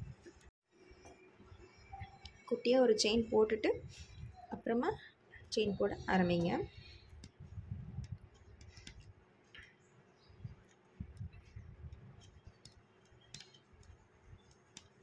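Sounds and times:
needle clicking through cloth: 6.4s - 9.7s, 10.5s - 15.0s.

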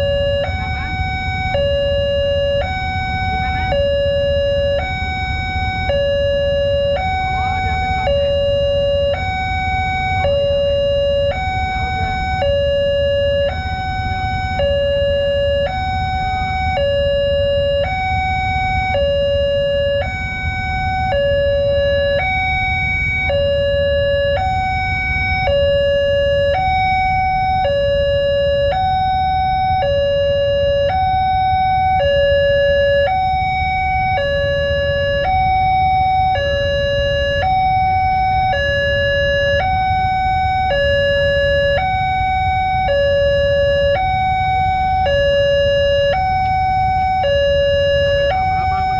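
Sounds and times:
level crossing two-tone alarm: 0.0s - 48.9s
low traffic rumble: 0.0s - 48.9s.

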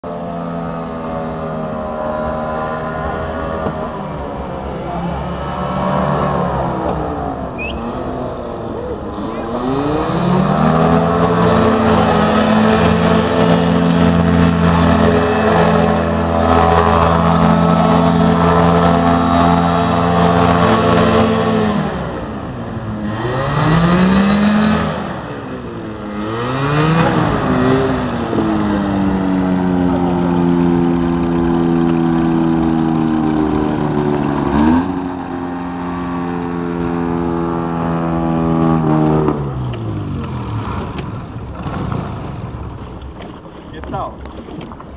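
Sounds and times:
airboat engine revving: 0.0s - 44.9s.

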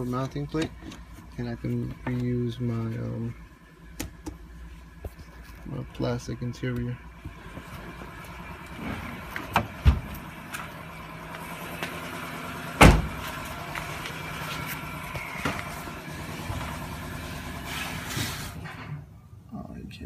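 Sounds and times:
steady background hum: 0.0s - 20.0s
car door shutting: 8.7s - 10.4s, 12.8s - 13.4s.

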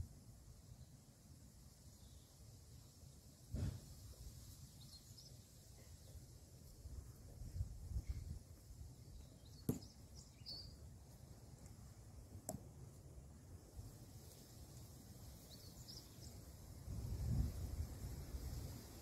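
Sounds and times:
faint bird chirps: 9.0s - 10.9s.

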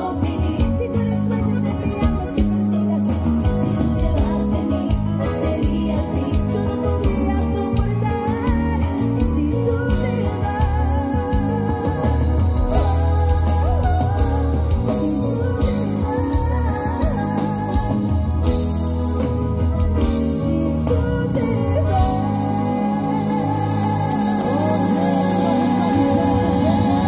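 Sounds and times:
live band playing: 0.0s - 27.0s
woman singing: 0.0s - 27.0s.

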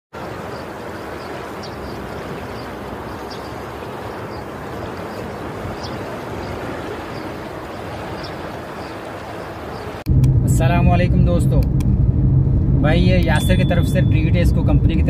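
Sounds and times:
car road and engine noise: 0.2s - 15.0s.

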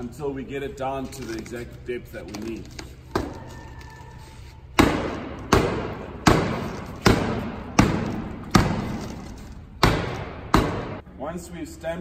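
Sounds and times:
rail pounding on metal stencil: 4.8s - 9.2s.

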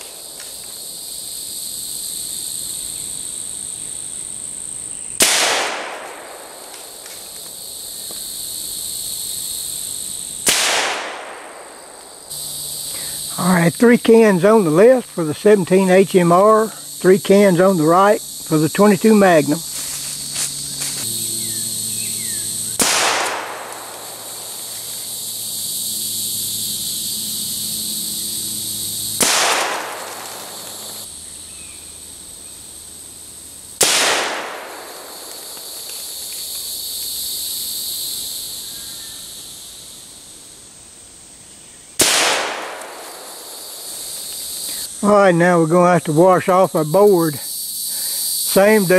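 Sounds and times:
crickets trilling: 0.0s - 48.9s
rifle shots: 5.2s - 7.0s, 10.4s - 11.8s, 22.8s - 24.2s, 29.2s - 30.9s, 33.8s - 35.2s, 42.0s - 43.3s.

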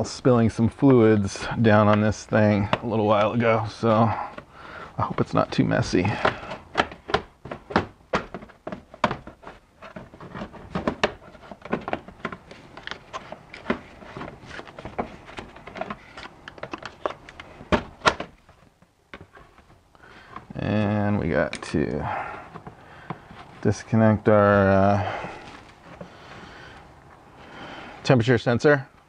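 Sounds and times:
plastic trim clicking and knocking: 6.2s - 18.5s.

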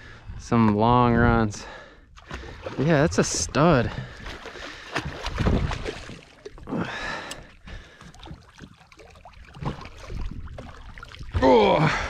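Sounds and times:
fish thrashing water splashing: 2.2s - 12.0s.

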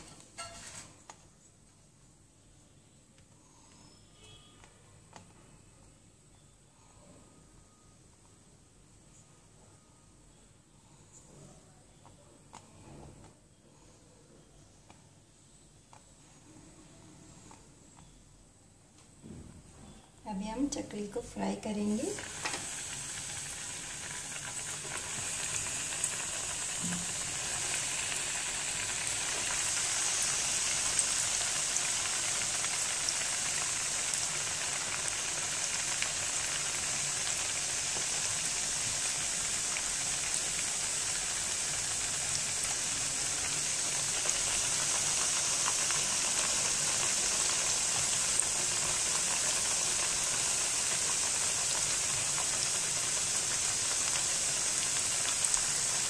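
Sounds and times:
dough sizzling in hot oil: 0.0s - 1.1s, 20.7s - 56.0s.

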